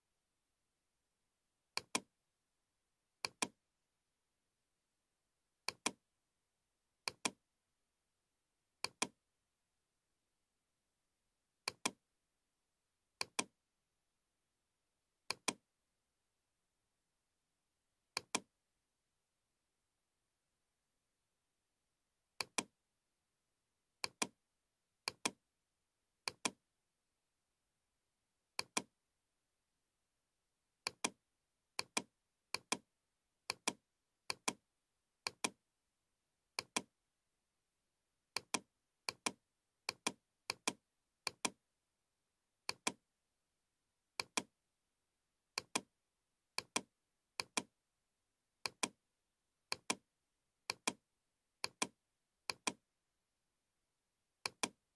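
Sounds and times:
computer mouse clicking: 0:01.8 - 0:02.1, 0:03.2 - 0:03.6, 0:05.6 - 0:06.0, 0:07.0 - 0:07.4, 0:08.8 - 0:09.2, 0:11.7 - 0:12.0, 0:13.2 - 0:13.5, 0:15.3 - 0:15.6, 0:18.2 - 0:18.5, 0:22.4 - 0:22.7, 0:24.0 - 0:24.4, 0:25.1 - 0:25.4, 0:26.2 - 0:26.6, 0:28.6 - 0:28.9, 0:30.8 - 0:31.2, 0:31.8 - 0:32.8, 0:33.5 - 0:34.6, 0:35.2 - 0:35.6, 0:36.6 - 0:36.9, 0:38.4 - 0:41.6, 0:42.6 - 0:43.0, 0:44.2 - 0:44.5, 0:45.6 - 0:45.9, 0:46.6 - 0:47.7, 0:48.6 - 0:49.0, 0:49.7 - 0:50.0, 0:50.6 - 0:51.0, 0:51.6 - 0:52.8, 0:54.4 - 0:54.8.

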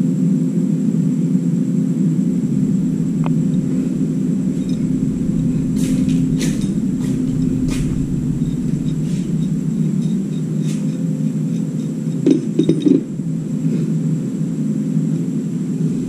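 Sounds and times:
low droning hum: 0:00.5 - 0:16.0.

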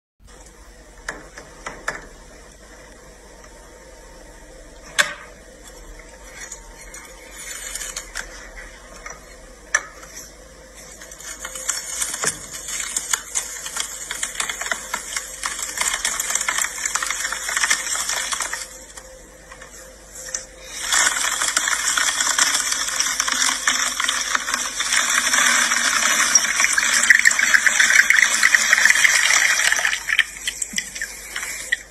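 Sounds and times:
pomegranate seeds crackling: 0:10.8 - 0:19.1.

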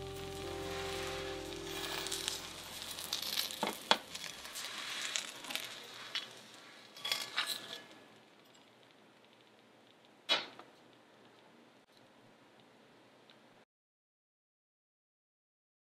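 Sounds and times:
egg sizzling in oil: 0:00.0 - 0:07.0.

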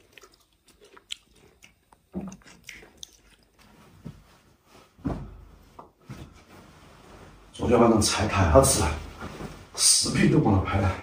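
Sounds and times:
chewing: 0:00.0 - 0:03.7
soft thumps: 0:05.0 - 0:06.7.

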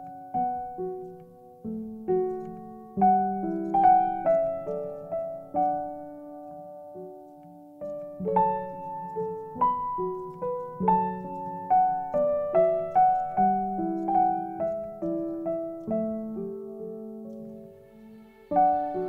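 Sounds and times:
slow gentle piano music: 0:00.0 - 0:19.0.

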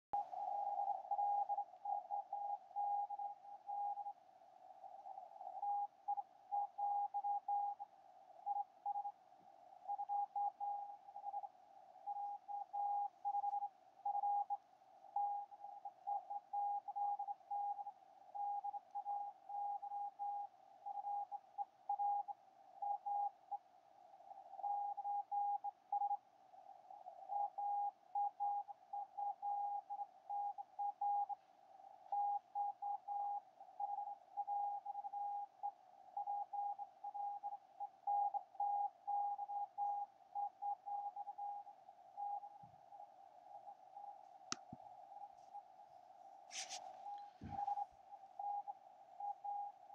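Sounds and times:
faint radio hiss: 0:45.3 - 0:48.2.

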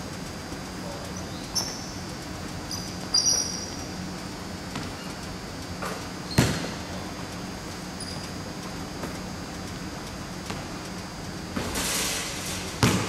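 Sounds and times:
low hum in hall: 0:00.0 - 0:13.0
sneakers squeaking on hardwood floor: 0:01.1 - 0:02.0, 0:02.7 - 0:04.0, 0:04.7 - 0:07.2, 0:08.0 - 0:08.4
basketball thud: 0:04.7 - 0:05.0, 0:05.8 - 0:06.9, 0:12.8 - 0:13.0.

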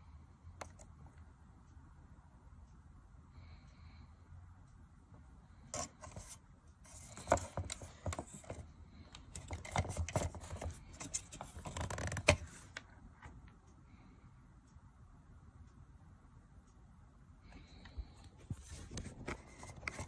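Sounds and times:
plastic camera housing scraping: 0:05.8 - 0:08.6.

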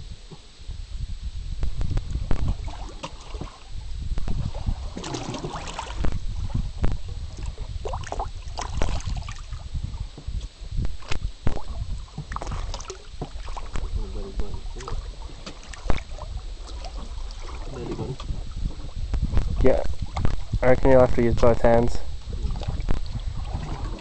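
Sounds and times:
steady low rumble: 0:00.0 - 0:24.0
fish splashing at water surface: 0:04.7 - 0:06.2, 0:07.4 - 0:09.6, 0:11.5 - 0:13.9, 0:14.8 - 0:18.4.

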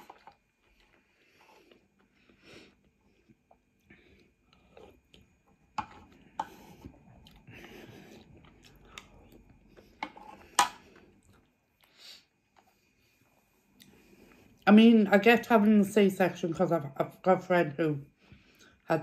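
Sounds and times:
person chewing noodles: 0:00.0 - 0:14.6.

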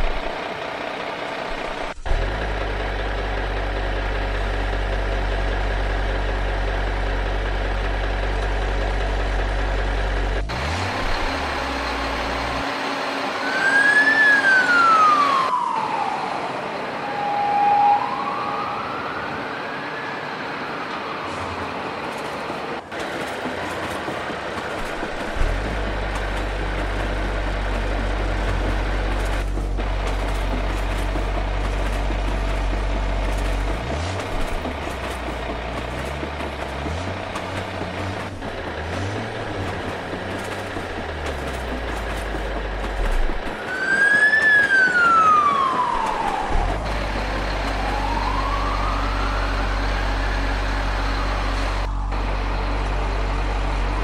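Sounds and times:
heavy engine idling: 0:00.0 - 0:17.5, 0:19.0 - 0:54.0
fire engine siren wailing: 0:12.8 - 0:22.1, 0:43.6 - 0:53.7.

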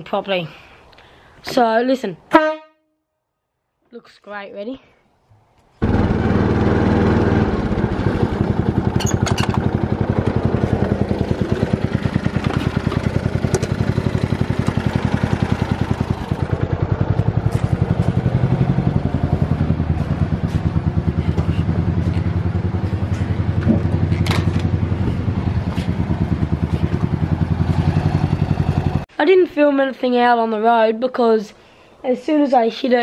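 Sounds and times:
lawn mower engine running: 0:05.8 - 0:29.0.

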